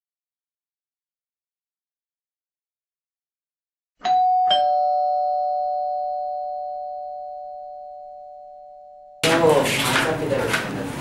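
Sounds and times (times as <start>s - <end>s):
two-note doorbell chime: 4.0s - 9.3s.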